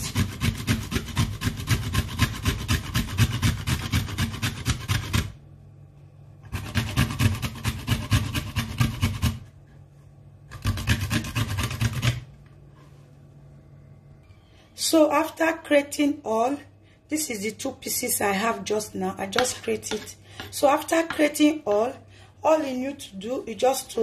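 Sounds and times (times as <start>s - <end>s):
nut rasping on metal grater: 0.0s - 5.3s, 6.5s - 9.4s, 10.5s - 12.2s.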